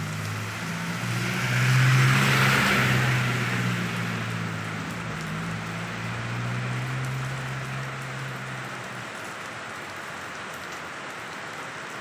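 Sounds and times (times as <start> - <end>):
rain on leaves: 0.0 - 12.0.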